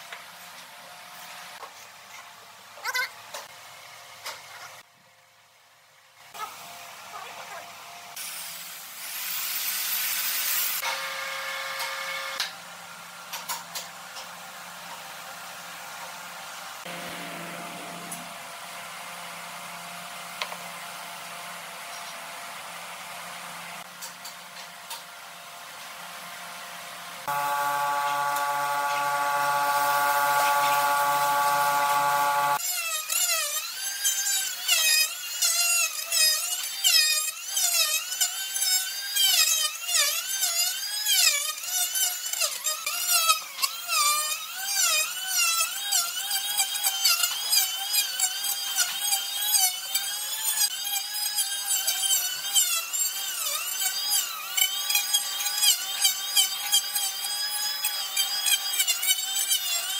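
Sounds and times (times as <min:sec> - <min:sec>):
electric planer shaving wood: 0:16.6 - 0:19.8, 0:27.2 - 0:59.9
steady machine hum: 0:27.3 - 0:32.6.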